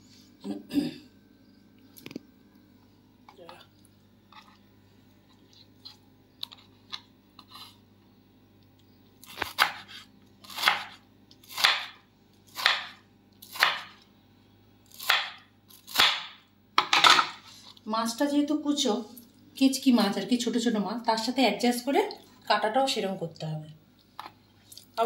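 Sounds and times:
knife slicing tomato on wooden board: 9.2s - 14.0s.

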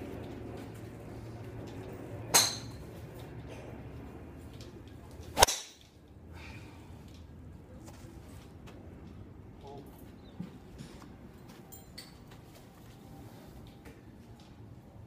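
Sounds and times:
golf club striking ball: 2.3s - 2.8s, 5.4s - 5.8s.

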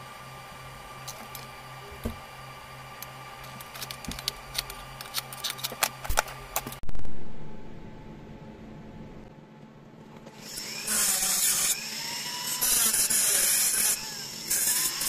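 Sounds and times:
sudden loud noise: 6.8s - 9.3s.

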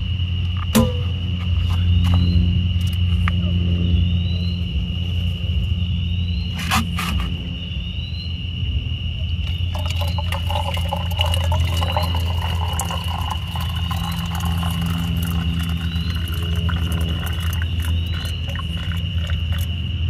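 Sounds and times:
insects trilling: 0.0s - 20.0s
low hum: 0.0s - 20.0s
watery pattering ticks: 9.7s - 19.8s.

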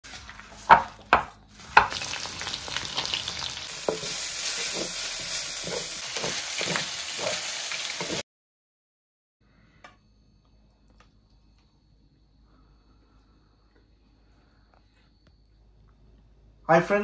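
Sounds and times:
food sizzling in wok: 0.0s - 8.2s
wooden spatula scraping wok: 0.0s - 8.2s.

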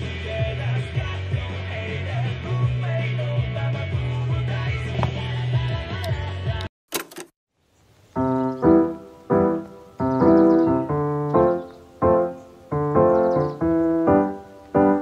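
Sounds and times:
background music: 8.2s - 15.0s
solo piano chords: 8.2s - 15.0s.

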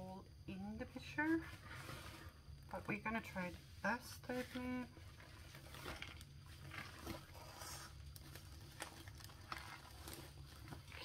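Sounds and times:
low steady hum: 0.0s - 11.0s
plastic film rustling and crinkling: 4.2s - 11.0s.

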